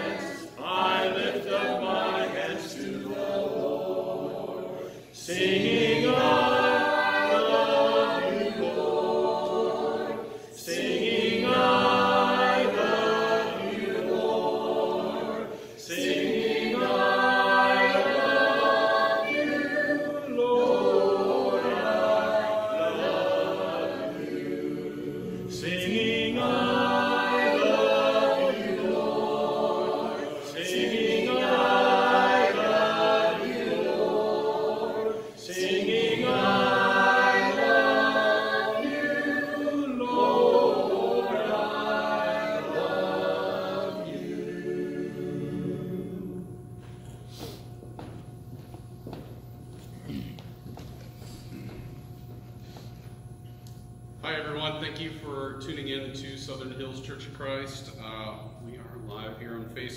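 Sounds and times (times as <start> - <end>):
a cappella choir singing: 0.0 - 47.8.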